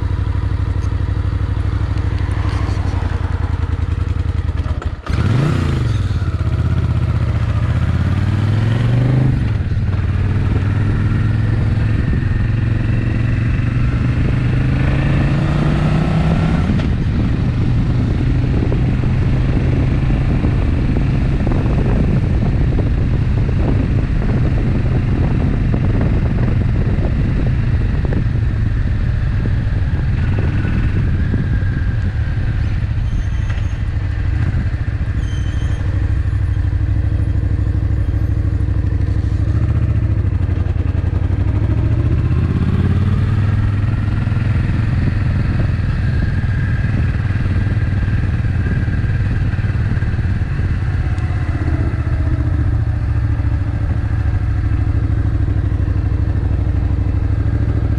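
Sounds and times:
motorcycle engine idling and pulling away: 0.0s - 57.9s.

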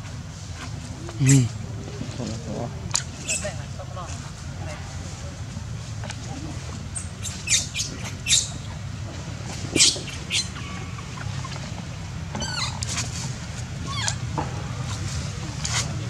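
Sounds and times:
baby monkey squealing: 7.2s - 8.5s, 9.8s - 10.6s, 12.4s - 12.8s, 13.8s - 14.2s
monkey chirps: 7.2s - 8.6s, 9.7s - 10.6s, 12.4s - 12.8s.

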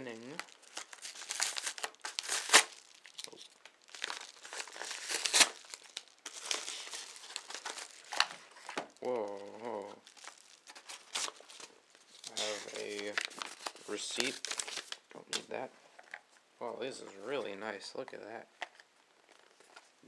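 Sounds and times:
paper envelope tearing and crinkling: 0.0s - 15.0s.

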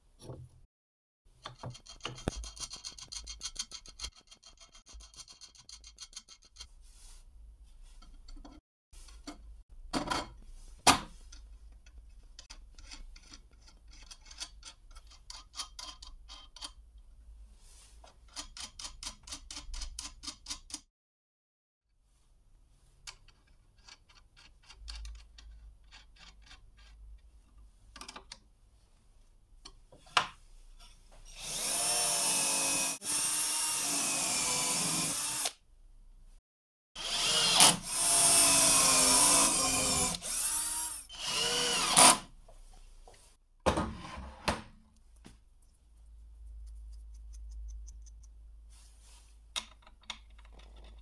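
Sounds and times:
drill drilling into wood: 31.4s - 35.6s, 37.0s - 42.3s.

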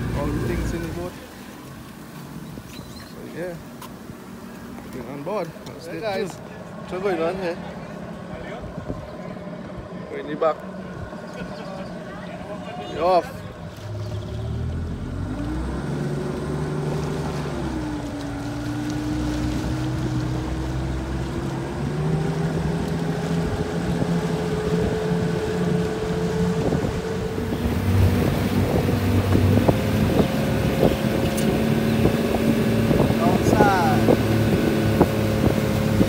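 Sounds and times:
outboard motor running: 0.0s - 2.6s, 4.2s - 36.0s
water noise: 0.0s - 36.0s
wind noise: 18.7s - 36.0s.

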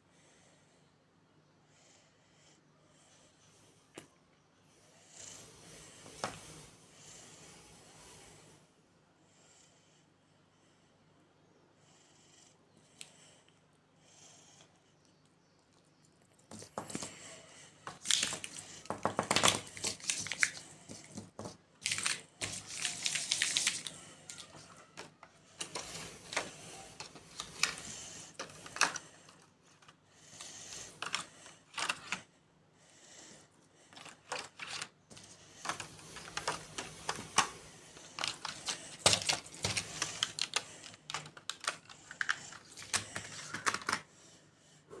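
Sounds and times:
plastic pens clicking and clattering: 16.1s - 17.3s, 17.9s - 32.3s, 33.9s - 44.1s.

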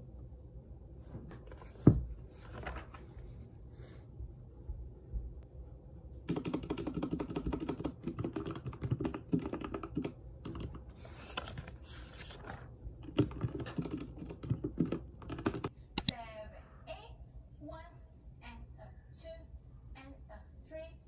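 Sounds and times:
typing on mechanical keyboard: 6.3s - 10.8s, 13.0s - 16.1s.

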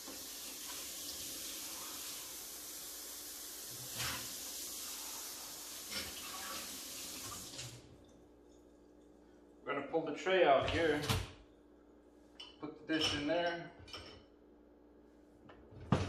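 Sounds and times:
faucet water running: 0.0s - 8.2s.

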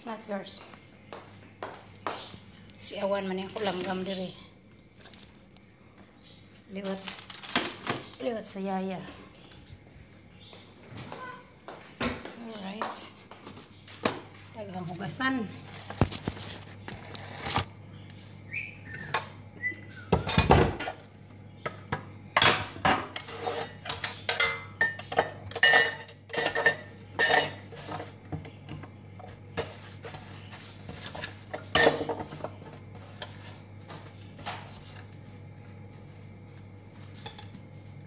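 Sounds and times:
dishes and kitchenware clinking: 21.9s - 28.1s, 31.0s - 33.4s.

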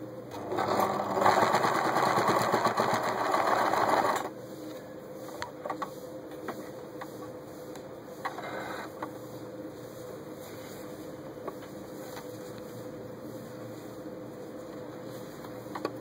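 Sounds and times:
sewing machine stitching: 0.3s - 4.3s.

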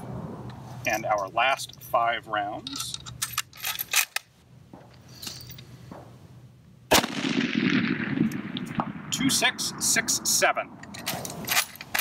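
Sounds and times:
rifle shot with echo: 6.9s - 10.8s.

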